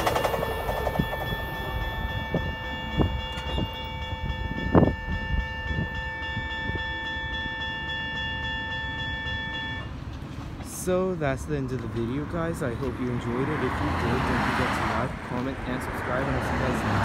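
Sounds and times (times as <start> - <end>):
electronic crossing bells ringing: 0.0 - 10.1
passing train: 0.0 - 17.0.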